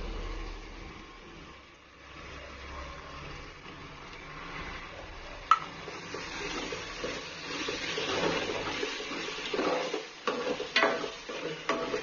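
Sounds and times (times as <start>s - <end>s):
spoon stirring sizzling sauce: 5.4s - 12.0s.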